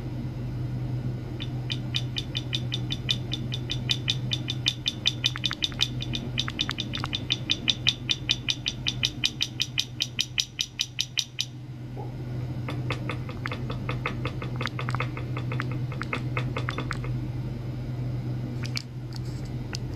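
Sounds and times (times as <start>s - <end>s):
low electrical hum: 0.0s - 19.9s
rapid sharp clicks: 1.4s - 11.5s, 12.7s - 17.1s.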